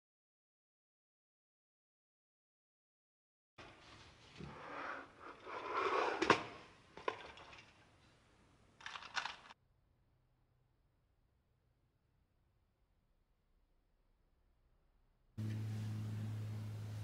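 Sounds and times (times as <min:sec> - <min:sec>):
small metal clicks: 0:08.8 - 0:09.6.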